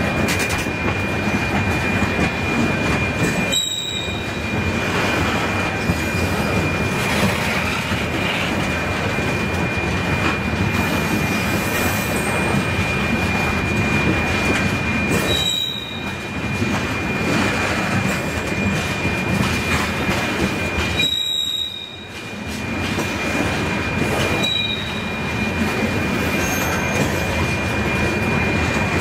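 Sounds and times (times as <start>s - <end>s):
train cars rolling on steel wheels: 0.0s - 29.0s
high wheel squeal: 1.8s - 8.6s, 15.0s - 16.3s, 20.6s - 22.2s, 23.2s - 28.9s.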